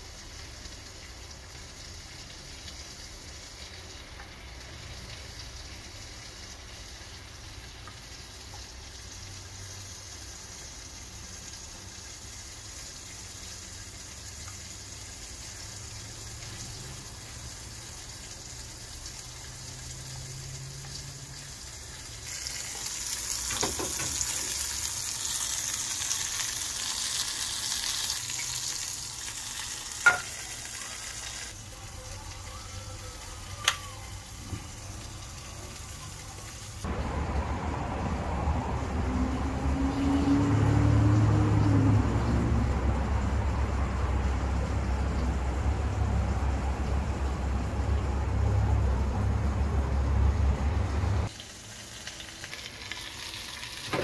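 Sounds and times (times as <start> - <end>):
shrimp sizzling in oil: 0.0 - 37.7, 50.2 - 54.0.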